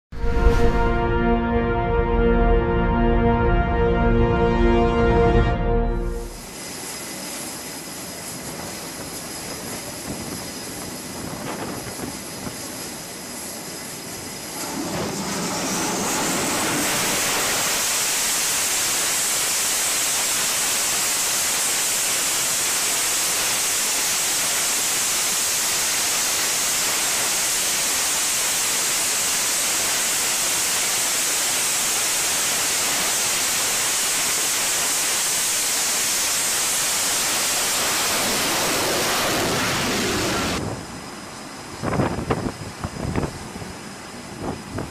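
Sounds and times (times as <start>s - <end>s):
jet engines spooling up to roar: 0.2s - 44.9s.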